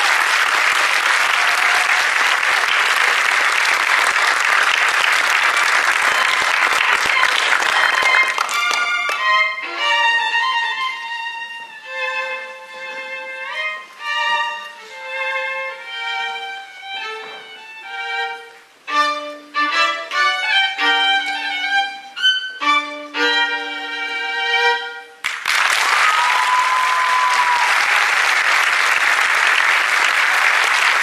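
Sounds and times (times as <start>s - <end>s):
audience applause: 0.0s - 9.3s, 25.2s - 31.0s
violin melody: 5.7s - 25.2s.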